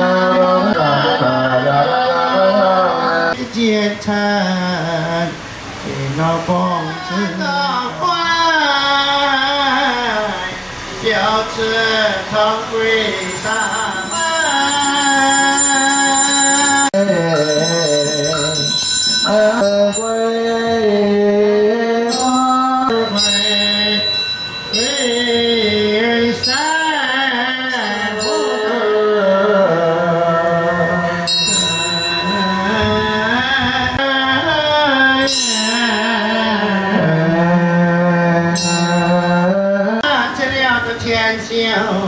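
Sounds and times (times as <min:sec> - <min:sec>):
melodic devotional chanting: 0:00.0 - 0:42.0
sharp struck accents: 0:22.1 - 0:27.1.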